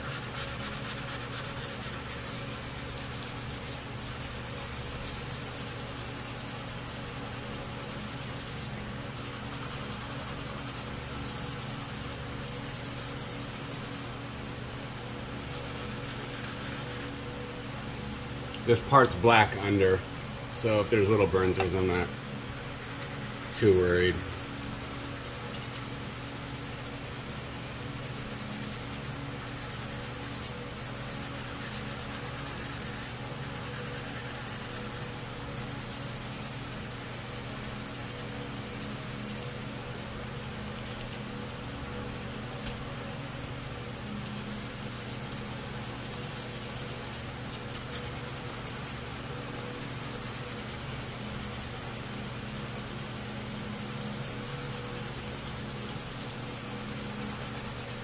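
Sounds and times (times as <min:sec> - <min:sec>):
sandpaper rubbing back and forth: 0:00.0 - 0:14.2, 0:15.5 - 0:17.1, 0:22.7 - 0:39.4, 0:44.4 - 0:47.3, 0:47.9 - 0:58.0.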